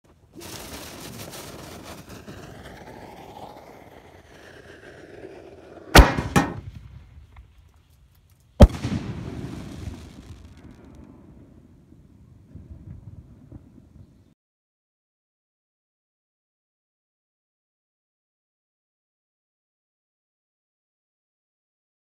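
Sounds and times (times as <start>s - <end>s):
fireworks rushing noise: 0.1s - 14.1s
firework bangs: 0.2s - 7.5s, 8.6s - 11.8s.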